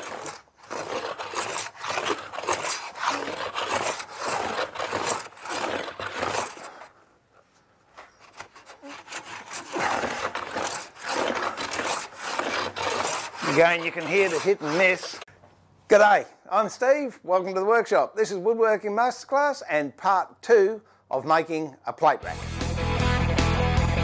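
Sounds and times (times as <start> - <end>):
hand plane shaving wood: 0.0 - 7.0, 8.0 - 15.3.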